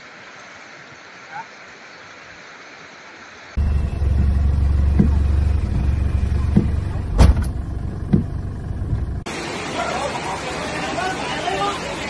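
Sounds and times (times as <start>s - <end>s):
dull thumps: 3.6s - 9.2s
car engine and road rumble: 3.6s - 9.3s.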